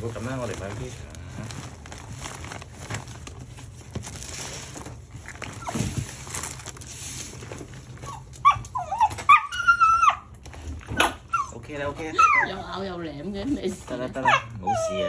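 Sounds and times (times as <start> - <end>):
rustling: 0.0 - 9.2
dog whining and yelping: 5.4 - 6.1, 7.9 - 12.8, 14.2 - 15.0.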